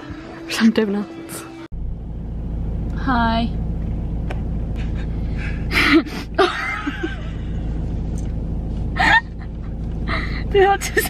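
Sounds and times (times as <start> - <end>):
low rumble inside a car: 1.7 - 11.0
man and woman laughing: 4.8 - 7.8, 9.0 - 10.3.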